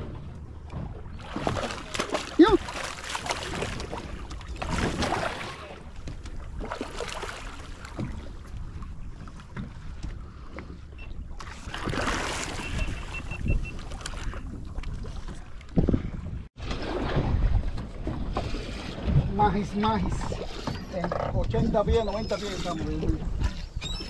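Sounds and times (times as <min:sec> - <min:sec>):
fish splashing in water: 0:01.2 - 0:05.8, 0:11.6 - 0:14.3.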